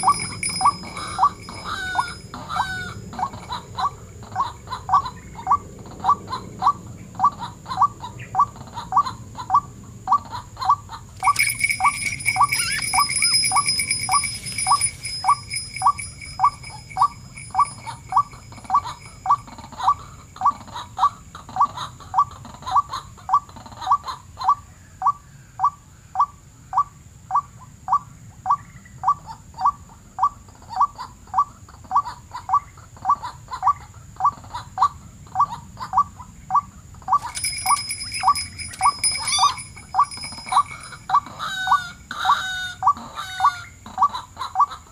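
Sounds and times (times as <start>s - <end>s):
thin high whine: 0.0s - 2.6s
waterhen calling: 0.0s - 5.6s, 11.2s - 20.6s, 37.1s - 44.8s.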